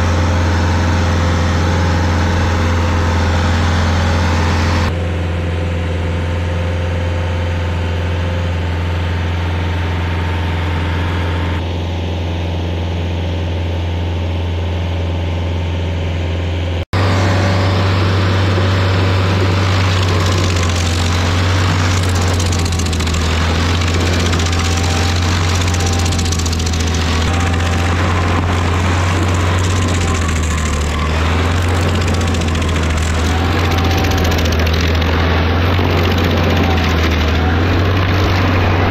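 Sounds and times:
cutter grinding wood into chips: 0.0s - 5.0s, 17.0s - 38.9s
stump grinder engine running: 0.0s - 11.8s, 17.0s - 38.9s.

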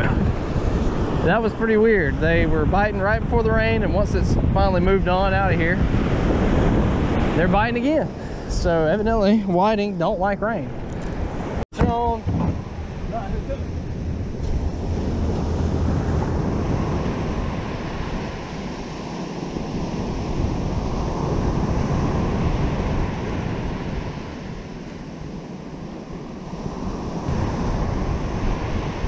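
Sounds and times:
wind buffeting microphone: 0.0s - 29.0s
surf breaking on beach: 11.8s - 29.0s.

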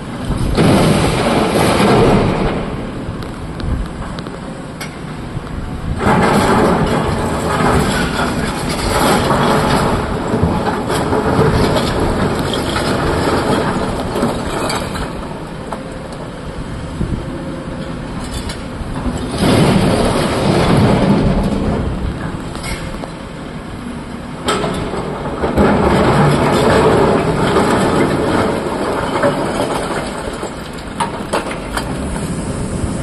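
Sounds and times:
rocks clattering into truck: 0.3s - 3.2s, 5.9s - 15.8s, 19.0s - 23.3s, 24.4s - 32.6s
excavator bucket scraping rock: 5.9s - 15.6s, 18.2s - 23.3s, 24.4s - 33.0s
diesel engine running: 29.8s - 33.0s.

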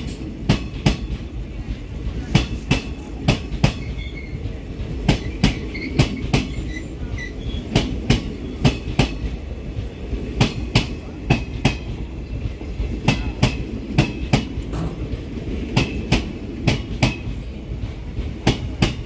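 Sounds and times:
train rumble: 0.0s - 19.0s
train wheels clacking over rail joints: 0.0s - 19.0s
faint wheel squeal: 3.8s - 4.4s, 5.2s - 7.7s.

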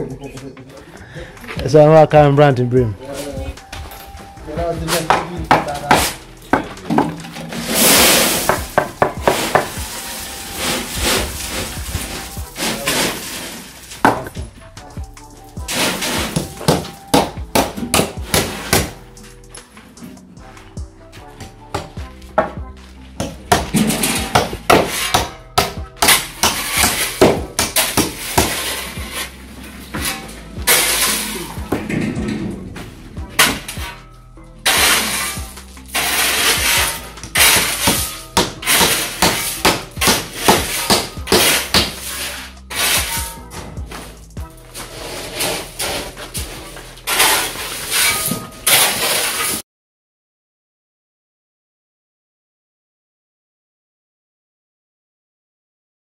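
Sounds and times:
background music: 0.0s - 49.6s
gritty scraping on concrete: 3.0s - 17.1s, 18.2s - 21.5s, 22.2s - 49.6s
hand tool knocking on metal: 5.0s - 7.3s.

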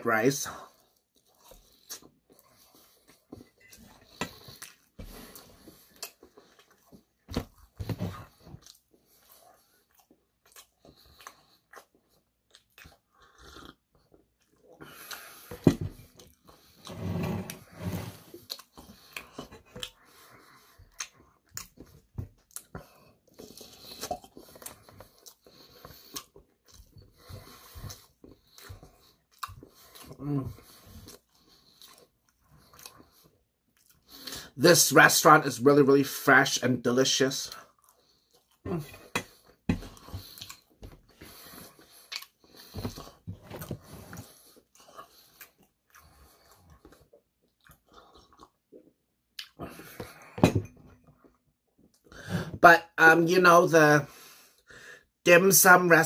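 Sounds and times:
chewing and wet mouth noises: 0.7s - 15.5s, 18.3s - 34.5s, 37.5s - 50.2s.

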